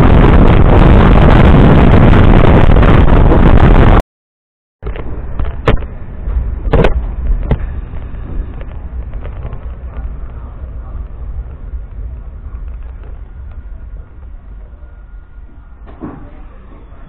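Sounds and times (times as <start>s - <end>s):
electric train running: 6.2s - 17.0s.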